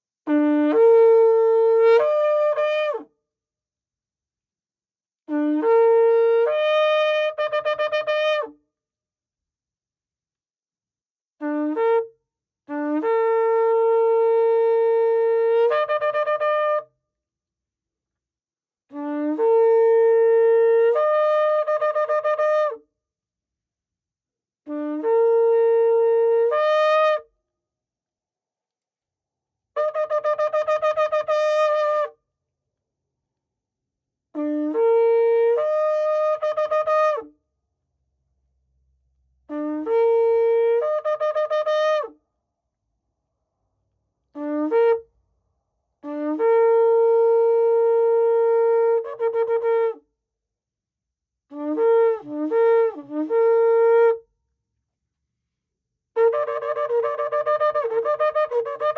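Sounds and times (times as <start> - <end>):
shofar blasts: 12.8 - 16.9, 19.0 - 22.8, 51.5 - 54.2, 56.2 - 58.9.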